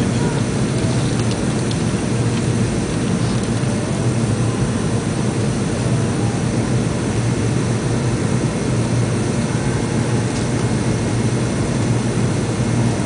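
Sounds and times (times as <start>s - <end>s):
air rushing along fuselage: 0.0s - 13.0s
airliner cabin engine drone: 0.0s - 13.0s.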